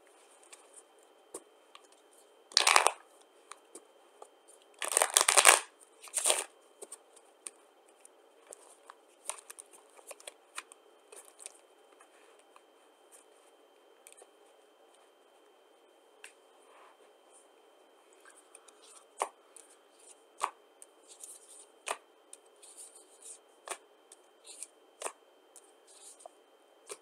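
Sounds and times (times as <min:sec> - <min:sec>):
cards riffle shuffling: 0:04.8 - 0:06.5.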